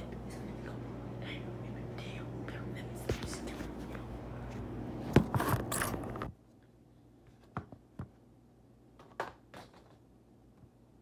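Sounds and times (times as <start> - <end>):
low hum: 0.0 - 7.3.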